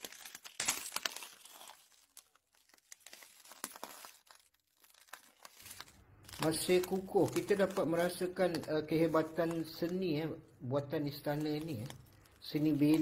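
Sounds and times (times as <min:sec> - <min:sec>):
footsteps crunching on debris: 0:00.0 - 0:10.0.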